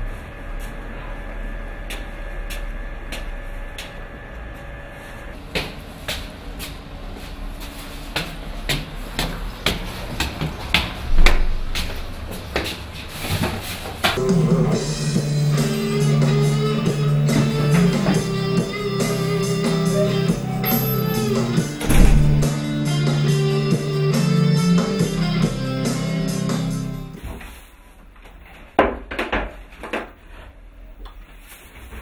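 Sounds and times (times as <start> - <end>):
footsteps on concrete stairs: 8.1 - 14.2
loud thump: 11.1 - 11.9, 21.8 - 22.5.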